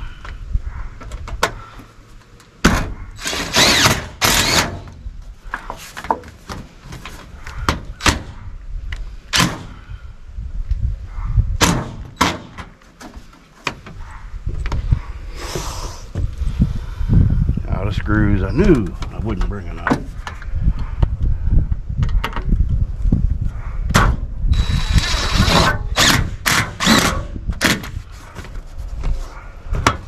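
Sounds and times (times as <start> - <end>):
cordless drill driving screws: 3.2 - 4.9, 24.5 - 27.2.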